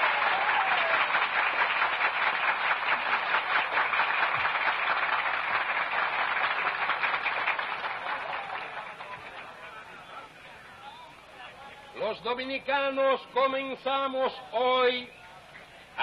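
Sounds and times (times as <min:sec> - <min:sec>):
crowd applauding: 0:00.0 - 0:10.2.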